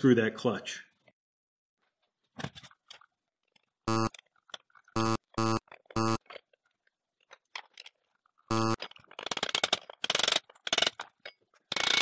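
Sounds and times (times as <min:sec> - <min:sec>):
buzzing electronic tone: 0:03.9 - 0:04.1, 0:05.0 - 0:06.2, 0:08.5 - 0:08.8
wrench clicking and rattling: 0:08.8 - 0:12.0.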